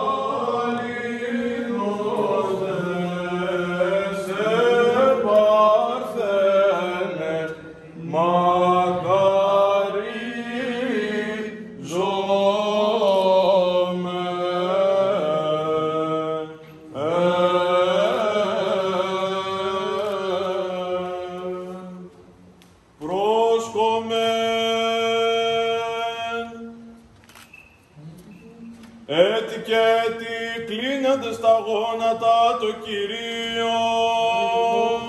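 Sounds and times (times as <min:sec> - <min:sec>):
man chanting: 0:29.1 - 0:35.0.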